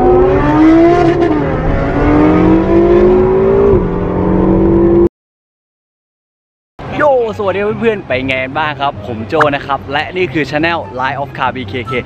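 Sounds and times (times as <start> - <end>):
sports car engine accelerating: 0.0 - 5.1.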